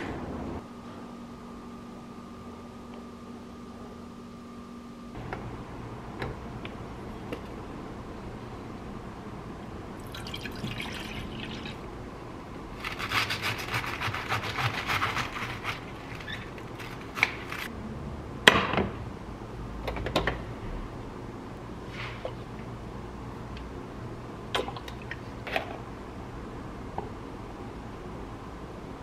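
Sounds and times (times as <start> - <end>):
liquid pouring and splashing: 10.0 - 11.8.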